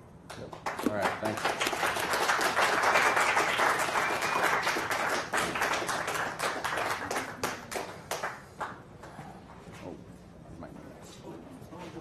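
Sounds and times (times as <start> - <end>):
audience applauding: 0.6 - 8.8.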